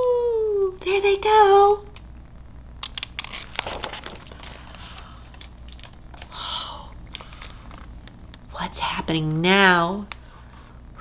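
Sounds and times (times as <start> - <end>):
paper page rustling and crinkling: 2.8 - 6.4, 7.0 - 8.1.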